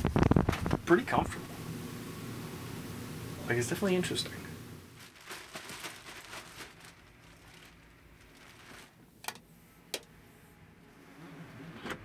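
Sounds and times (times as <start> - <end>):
plastic bag rustling: 4.9 - 9.2.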